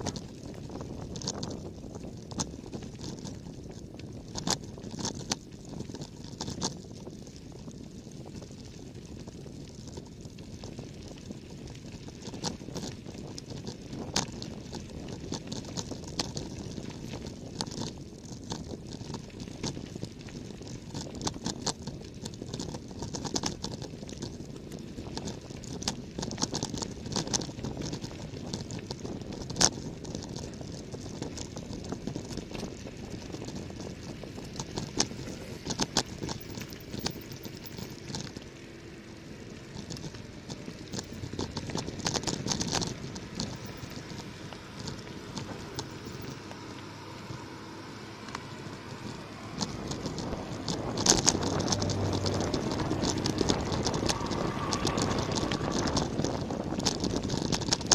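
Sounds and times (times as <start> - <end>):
bicycle tyres crunching on gravel: 0.0 - 57.9
stones clicking and knocking: 12.1 - 57.9.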